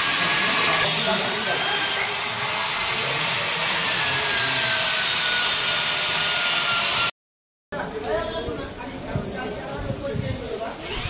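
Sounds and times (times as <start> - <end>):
electric drill boring into wood: 0.0 - 7.1.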